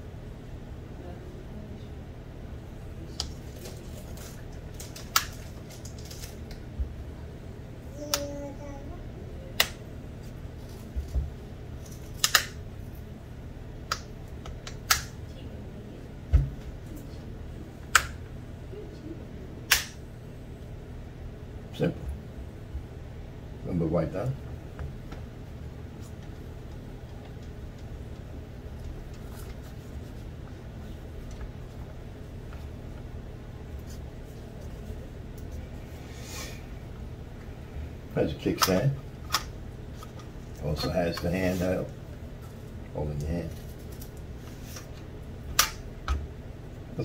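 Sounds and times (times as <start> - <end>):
low room hum: 0.0 - 47.0.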